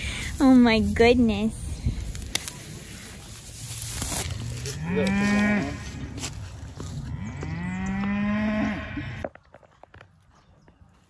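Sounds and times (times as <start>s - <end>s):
cattle mooing: 4.6s - 6.0s, 7.0s - 9.2s.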